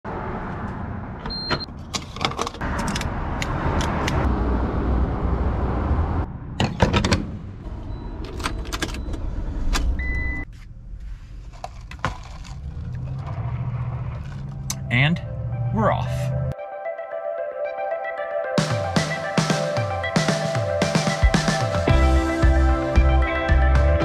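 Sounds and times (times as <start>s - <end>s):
fuel pump beeps: 1.3s - 1.7s, 7.8s - 10.5s.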